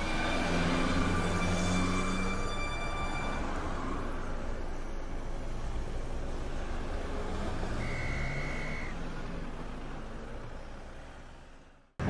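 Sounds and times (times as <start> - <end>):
steady high tone: 0.0 - 5.0, 7.8 - 9.0
road traffic hum: 0.0 - 12.0.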